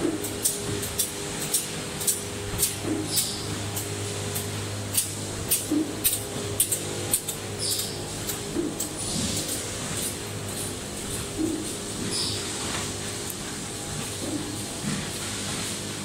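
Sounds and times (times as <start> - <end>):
low machine hum: 0.0 - 16.0.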